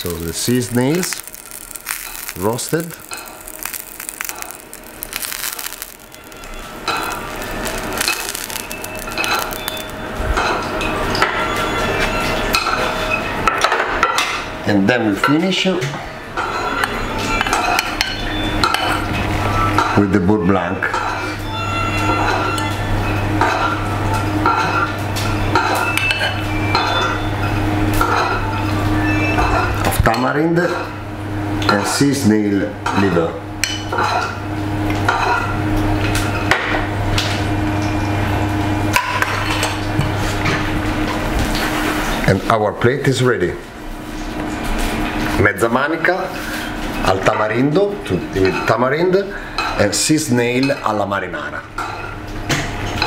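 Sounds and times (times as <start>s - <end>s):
hot pan crackling: 0.0s - 11.1s.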